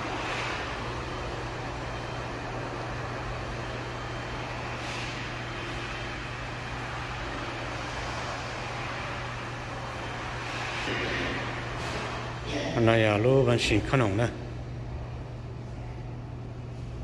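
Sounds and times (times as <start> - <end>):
machinery humming and hissing: 0.0 - 17.0.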